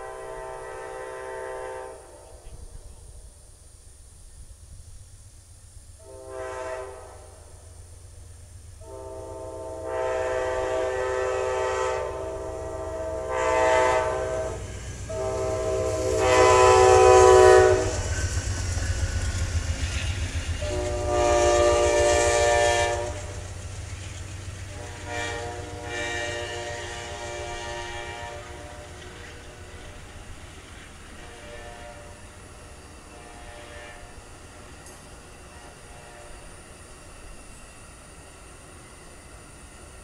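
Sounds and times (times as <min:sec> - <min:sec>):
locomotive air horn blasts: 0:00.0 - 0:02.4, 0:06.0 - 0:07.7, 0:08.8 - 0:18.2, 0:20.6 - 0:23.4, 0:24.7 - 0:29.9, 0:31.1 - 0:34.3, 0:35.5 - 0:36.5
train wheels on rails: 0:00.0 - 0:40.0
locomotive engines rumbling: 0:06.9 - 0:40.0.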